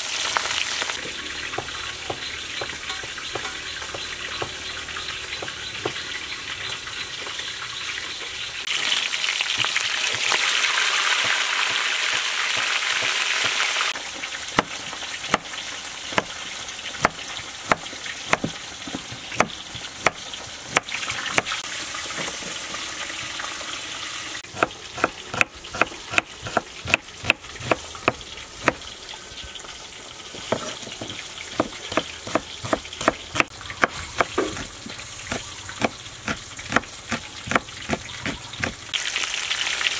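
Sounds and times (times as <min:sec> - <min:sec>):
frying sizzle: 0:00.0 - 0:39.9
knife chopping on wooden board: 0:01.6 - 0:04.6, 0:16.1 - 0:16.4, 0:17.0 - 0:21.5, 0:24.6 - 0:28.8, 0:30.4 - 0:38.8.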